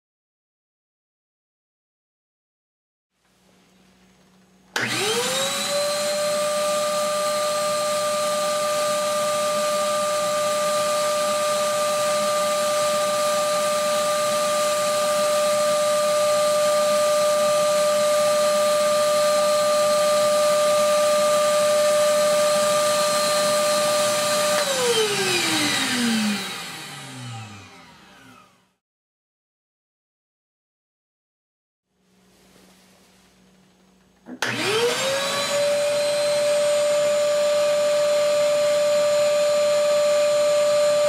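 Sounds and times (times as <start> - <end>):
shop vacuum motor whine: 4.7 - 28.8, 34.2 - 41.0.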